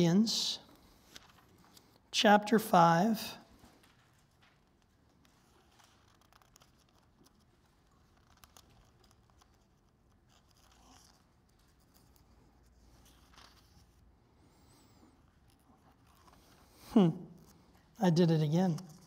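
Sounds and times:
soft ticks of pages: 0.7 - 2.1, 3.6 - 16.7, 18.6 - 19.0
thin pages rustling: 0.8 - 2.1, 3.6 - 18.0.

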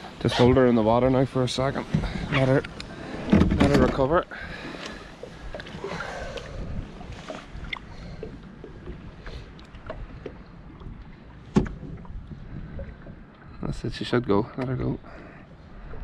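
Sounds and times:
water lapping against boat: 0.0 - 16.0
wind buffeting microphone: 5.4 - 9.2, 9.8 - 14.1.

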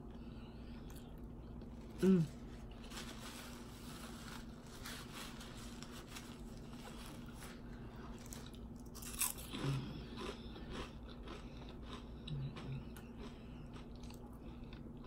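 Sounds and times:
chewing crisp potato chips: 5.8 - 15.0.

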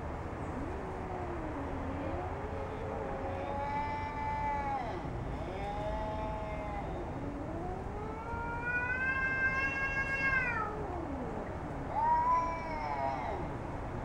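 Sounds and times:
cats yowling: 0.5 - 13.6.

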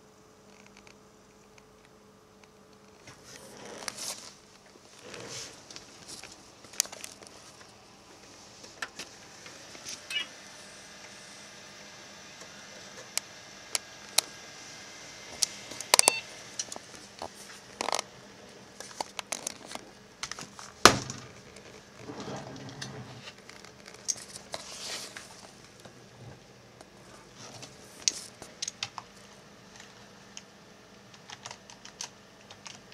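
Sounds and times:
computer hum: 0.0 - 32.9
crinkling rustles: 2.7 - 9.2, 18.7 - 25.8.

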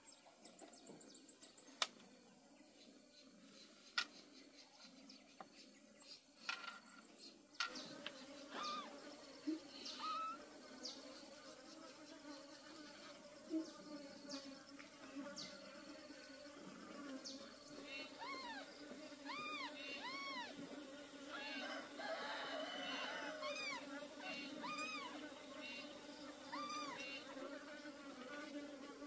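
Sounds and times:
insects buzzing: 6.0 - 29.0
short high arching calls: 8.5 - 9.0, 9.8 - 10.4, 17.8 - 20.6, 21.3 - 25.9, 26.5 - 27.3.

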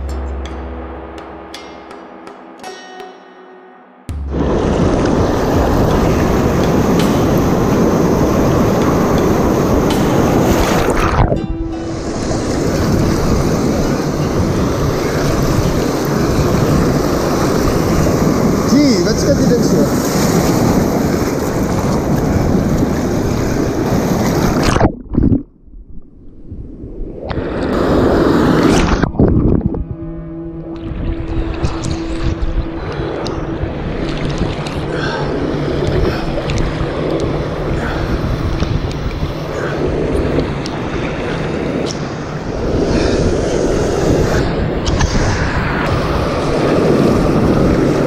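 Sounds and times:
surf breaking: 4.1 - 25.6
surf and wind rushing: 4.1 - 48.0
muffled underwater rumble: 24.4 - 48.0
sea water sloshing: 30.6 - 48.0.

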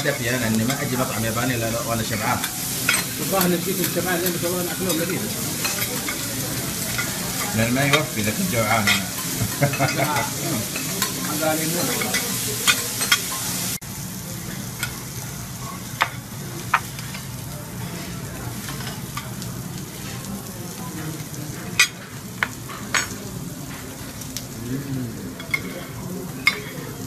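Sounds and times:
food sizzling on a griddle: 0.0 - 27.0
utensils clinking on metal plate: 2.1 - 13.5, 25.4 - 26.8.

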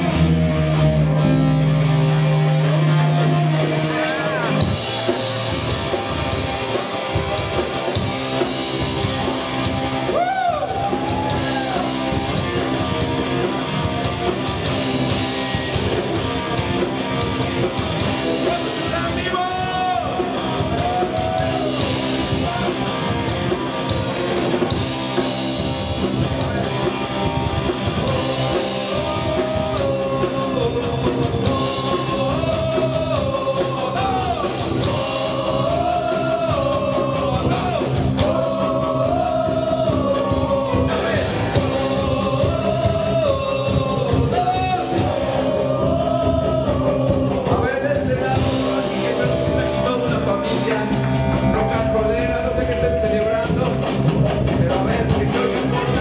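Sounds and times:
bass: 0.0 - 56.0
drum kit: 0.0 - 56.0
electric guitars: 0.0 - 56.0
person singing: 27.9 - 56.0.

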